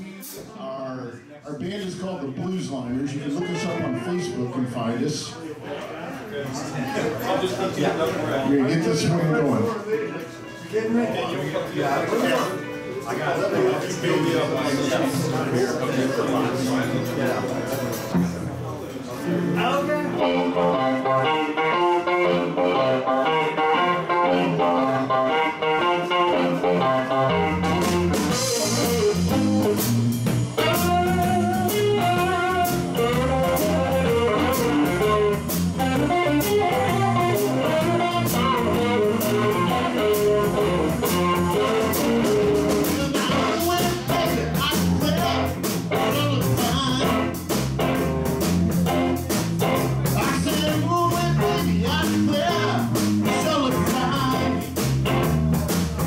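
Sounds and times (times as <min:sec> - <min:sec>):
electric blues band playing: 0:01.6 - 0:05.4, 0:07.0 - 0:56.0.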